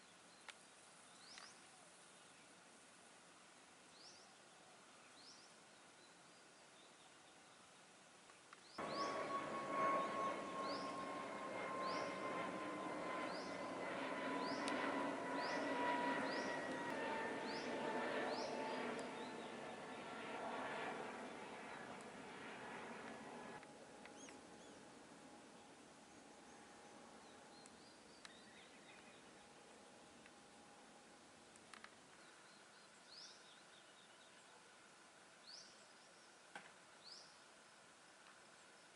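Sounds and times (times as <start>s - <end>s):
bird rising chirp: 8.8s - 22.0s
jet airliner engine drone: 8.8s - 31.9s
faint clicks: 31.5s - 32.2s.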